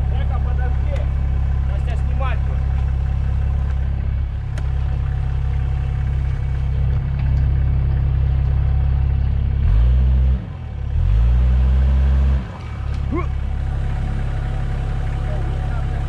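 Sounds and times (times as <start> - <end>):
diesel engine running and revving: 0.0 - 16.0.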